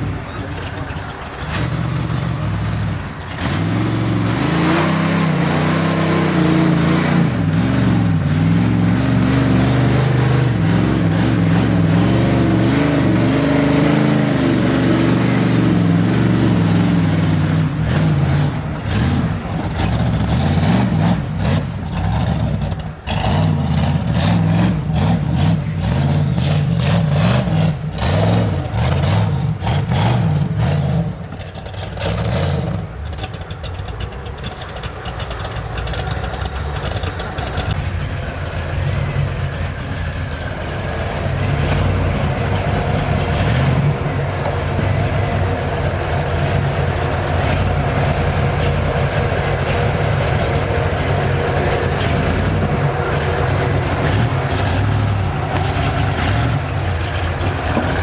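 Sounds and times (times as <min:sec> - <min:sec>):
knocks and clatter over boulders: 0:00.0 - 0:03.7, 0:31.1 - 0:58.0
buggy engine idling and revving: 0:00.0 - 0:58.0.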